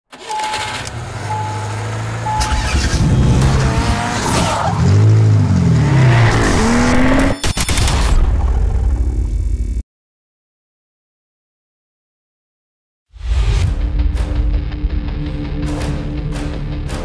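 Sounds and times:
short beeps: 0.2 - 1.7, 2.3 - 2.9
car engine revving: 0.2 - 7.4.

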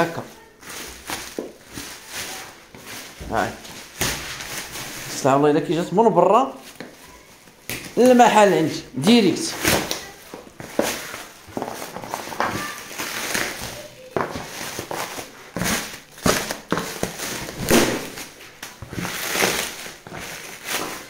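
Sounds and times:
plastic packaging crinkling: 0.0 - 21.0.

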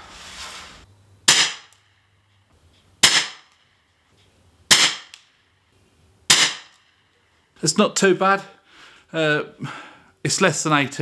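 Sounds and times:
air rifle shots: 1.2 - 1.8, 3.0 - 3.6, 4.7 - 5.2, 6.3 - 6.9
sharp crack with ring: 1.2 - 2.0, 3.0 - 3.7, 4.7 - 5.4, 6.3 - 7.1.

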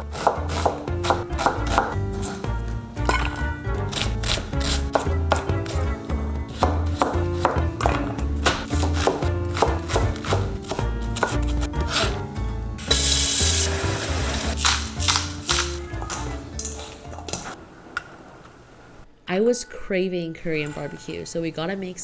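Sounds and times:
knife chopping on cutting board: 0.0 - 2.4, 3.9 - 5.8, 6.5 - 12.2.

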